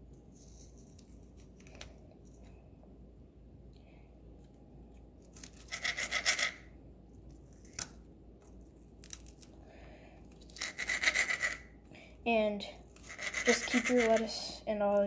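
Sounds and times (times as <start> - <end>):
knife sawing through lettuce: 13.0 - 14.3.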